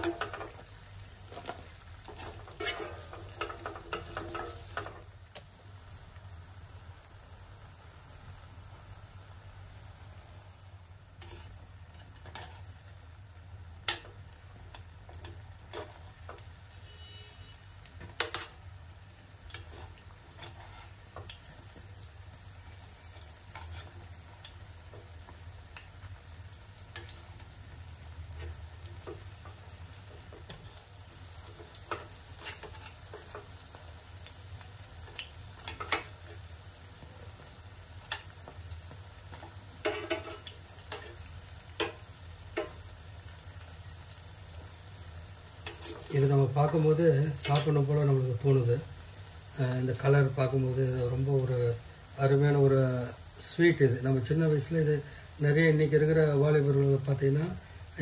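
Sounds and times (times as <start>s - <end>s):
batter balls sizzling in oil: 0.0s - 58.0s
steel spoon clicking on pan: 18.0s - 18.6s, 41.8s - 42.0s.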